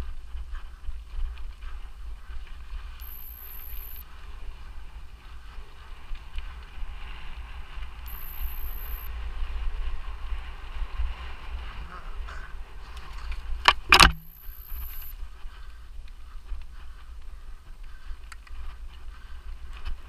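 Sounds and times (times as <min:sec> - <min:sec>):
wind rumble on microphone: 0:00.0 - 0:03.0, 0:04.0 - 0:14.0, 0:14.7 - 0:20.0
mountain bike riding on trail: 0:00.0 - 0:20.0
high-pitched beep: 0:03.0 - 0:04.0, 0:08.1 - 0:09.1, 0:14.0 - 0:15.2.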